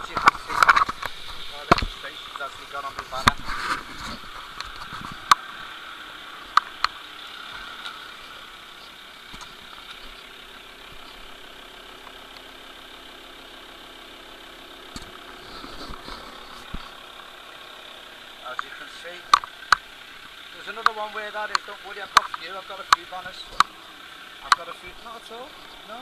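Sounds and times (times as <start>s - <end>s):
car engine idling: 0.0s - 26.0s
sharp clicks: 20.6s - 23.8s, 24.4s - 24.9s.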